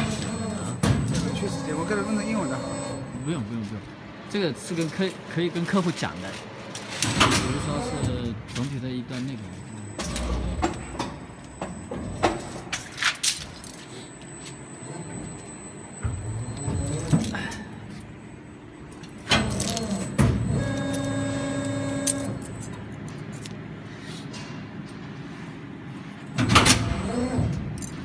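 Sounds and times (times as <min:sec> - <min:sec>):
moulding machine running: 0:00.0 - 0:03.8, 0:07.0 - 0:12.3.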